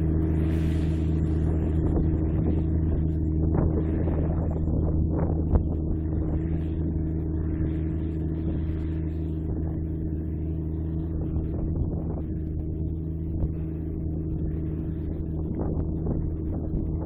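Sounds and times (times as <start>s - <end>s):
tractor diesel engine running: 0.0s - 17.0s.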